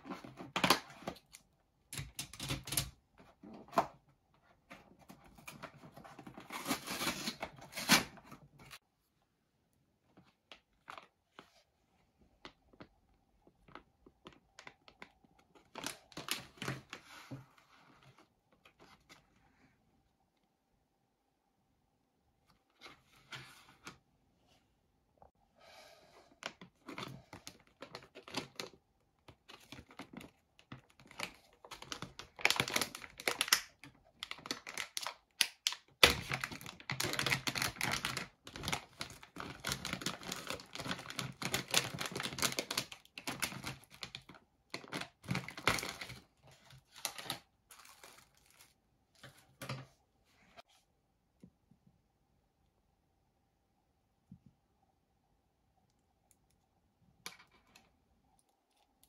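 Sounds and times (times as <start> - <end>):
crinkling rustles: 36.1 - 49.8.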